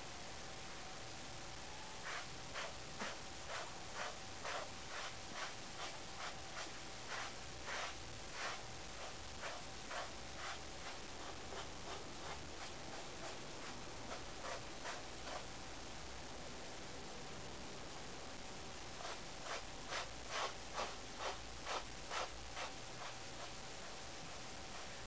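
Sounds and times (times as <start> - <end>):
brush strokes through cat fur: 2.0 - 15.5, 19.0 - 25.0.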